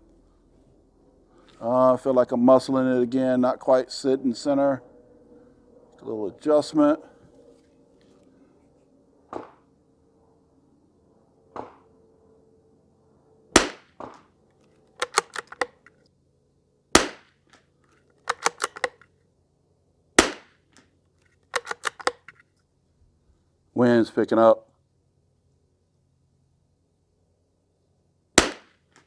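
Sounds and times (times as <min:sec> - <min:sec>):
rifle shots: 0:13.5 - 0:14.2, 0:15.0 - 0:15.7, 0:16.9 - 0:17.3, 0:18.3 - 0:19.0, 0:20.2 - 0:20.6, 0:28.4 - 0:28.8
rifle bolt clicking: 0:15.0 - 0:15.9, 0:18.2 - 0:19.0, 0:21.5 - 0:22.4.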